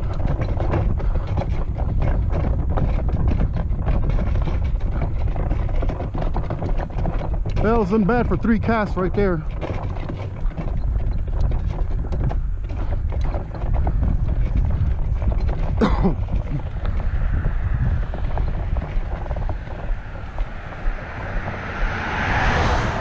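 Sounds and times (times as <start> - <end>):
wind buffeting microphone: 0.0 - 23.0
car passing: 16.6 - 23.0.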